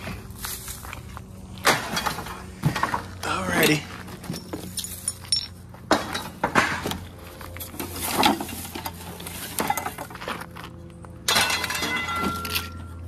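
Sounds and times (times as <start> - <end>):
scrap metal clanking: 7.6 - 10.4, 11.3 - 12.9.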